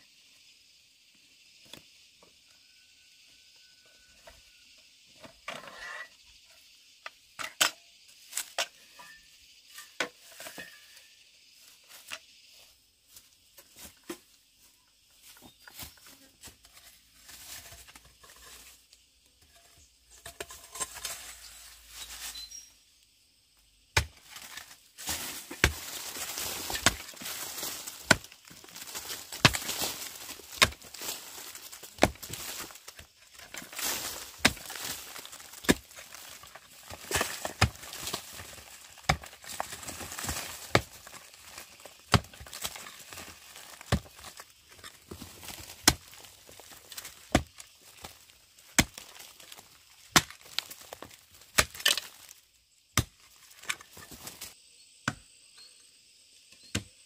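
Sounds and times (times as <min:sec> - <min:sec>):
loose soil spilling: 0:24.0 - 0:52.4.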